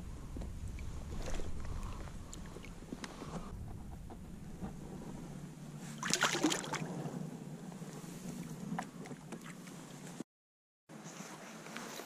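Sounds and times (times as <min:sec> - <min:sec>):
water lapping and dripping: 0:00.6 - 0:03.5, 0:05.9 - 0:06.9
loud fish splash: 0:06.0 - 0:06.8.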